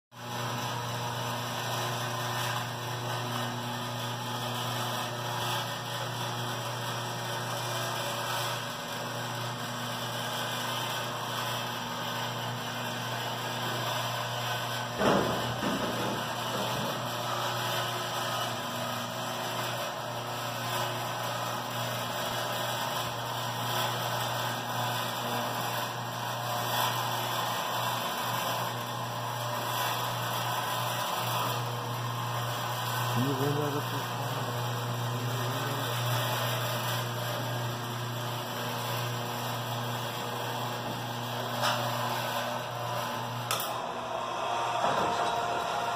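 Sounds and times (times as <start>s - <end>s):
door motor humming: 0.4s - 45.9s
door drive motor humming: 14.6s - 19.1s, 31.2s - 45.9s.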